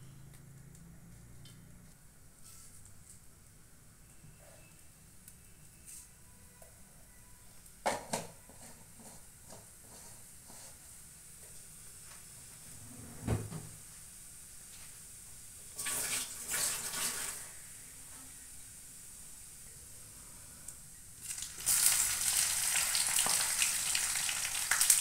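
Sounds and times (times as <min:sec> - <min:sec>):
oil sizzling: 0:14.4 - 0:17.9, 0:21.1 - 0:25.0.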